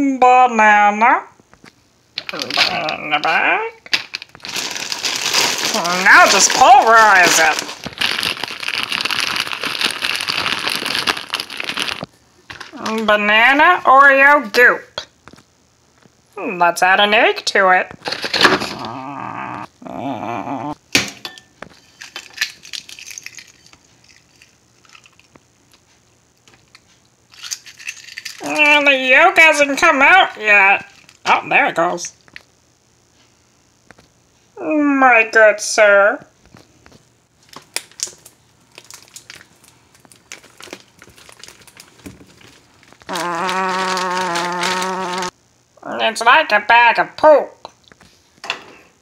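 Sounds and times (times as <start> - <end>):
plastic bag crinkling: 2.2 - 13.1, 21.7 - 28.7, 30.8 - 31.3, 36.5 - 45.3
egg cracking: 3.8 - 12.8, 21.0 - 28.6, 36.4 - 45.3.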